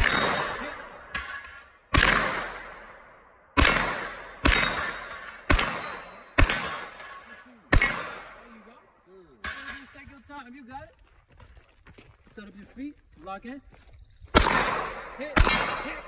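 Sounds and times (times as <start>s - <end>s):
gunshots with echo: 0.0s - 8.6s, 14.3s - 16.0s.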